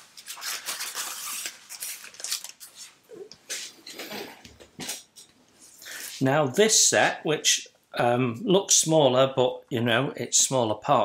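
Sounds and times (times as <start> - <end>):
paper and plastic rustling: 0.0 - 4.2.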